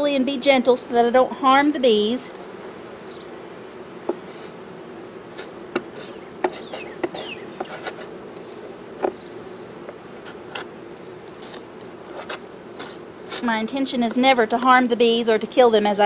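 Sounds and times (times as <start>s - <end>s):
bees buzzing: 0.0s - 16.0s
metal tool scraping wood: 4.0s - 4.6s, 5.2s - 8.2s, 9.9s - 14.3s.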